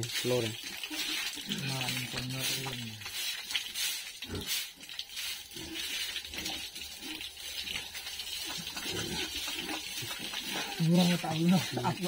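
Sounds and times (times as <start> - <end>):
hose spraying water on concrete: 0.0 - 12.0
pig grunting: 8.5 - 10.9.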